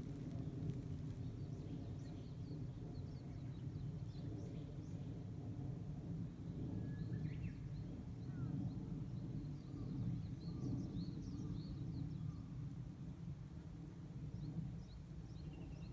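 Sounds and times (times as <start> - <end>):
low outdoor rumble: 0.0 - 15.9
small birds chirping: 14.4 - 15.9.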